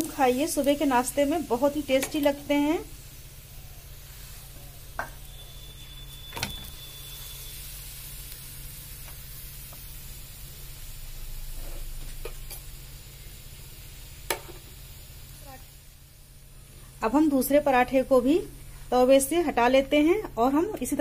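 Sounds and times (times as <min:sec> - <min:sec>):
flatbread sizzling in oil: 0:00.0 - 0:21.0
low hum: 0:10.5 - 0:14.0.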